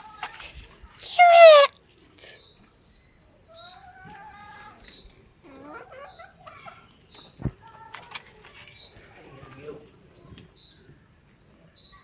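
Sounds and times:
chicken clucking and calling: 0:01.1 - 0:01.8, 0:03.3 - 0:07.8.

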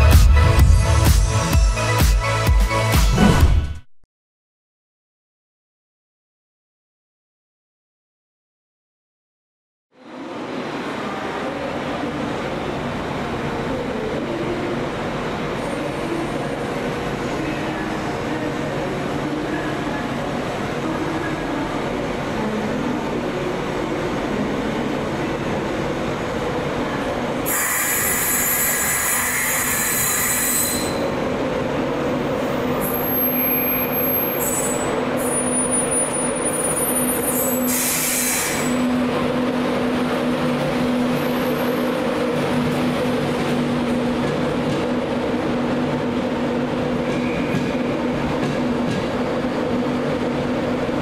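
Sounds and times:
train hum: 0:10.0 - 0:51.0
train wheels squealing: 0:27.5 - 0:31.2, 0:32.8 - 0:38.9, 0:47.1 - 0:47.9.

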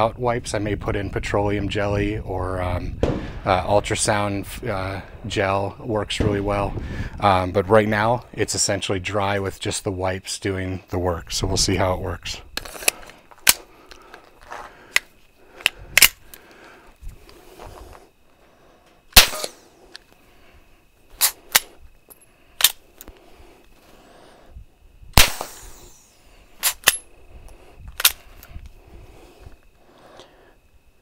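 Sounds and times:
bolt action clicks: 0:14.9 - 0:16.4, 0:21.2 - 0:21.7, 0:22.6 - 0:23.2, 0:26.6 - 0:28.7
suppressed pistol shots: 0:19.2 - 0:19.6, 0:25.2 - 0:27.0.

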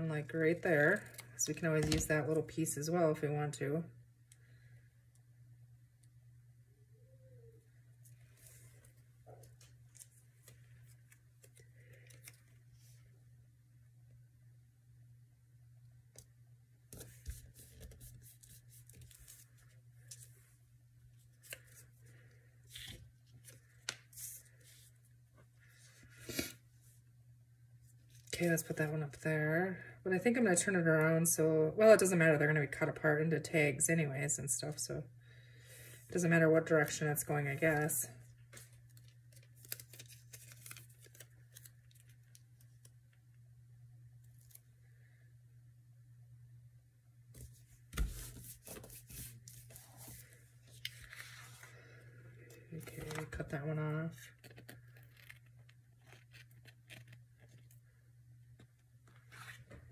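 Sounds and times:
low steady hum: 0:00.0 - 0:59.9
paper stickers rustling and clicking: 0:38.5 - 0:42.9
paper rustling and sliding: 0:47.4 - 0:51.8.

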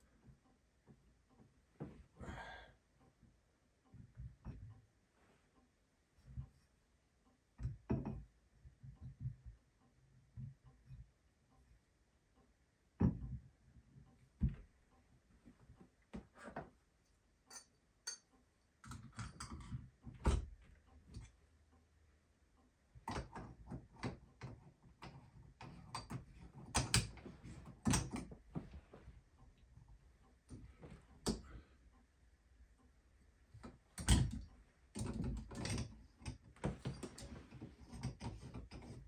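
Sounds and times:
hands clicking and tapping parts: 0:17.5 - 0:21.8, 0:22.6 - 0:32.1, 0:32.8 - 0:39.0.

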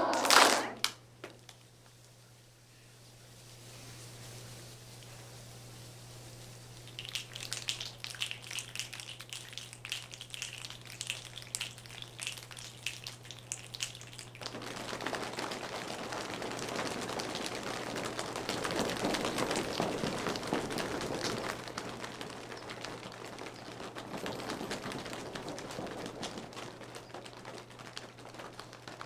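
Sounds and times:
audience clapping: 0:00.0 - 0:01.0, 0:06.9 - 0:29.0.

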